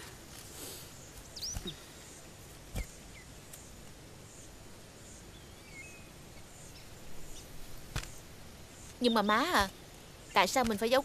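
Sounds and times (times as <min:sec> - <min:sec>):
high bird chirps: 0:01.3 - 0:01.8, 0:05.3 - 0:07.5, 0:08.8 - 0:10.6.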